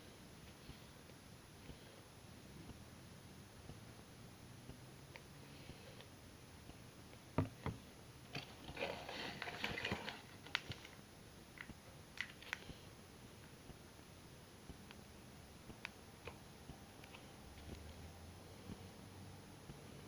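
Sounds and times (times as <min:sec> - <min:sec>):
plastic and foil packet crinkling: 0:08.3 - 0:11.0.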